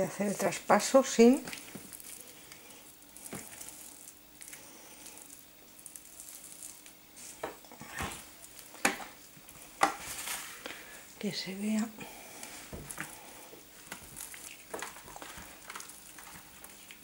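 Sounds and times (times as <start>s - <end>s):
hands handling dough: 0.0s - 11.5s, 12.1s - 17.0s.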